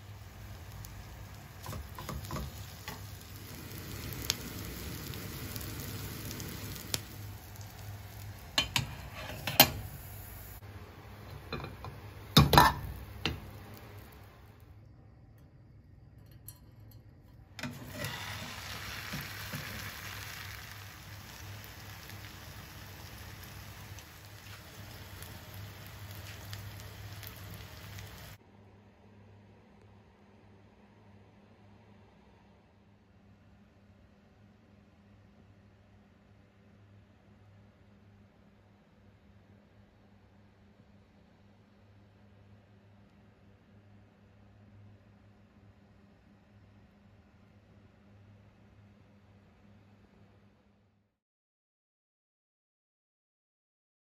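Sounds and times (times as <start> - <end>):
omelette sizzling in frying pan: 0.0 - 14.6, 17.6 - 28.4.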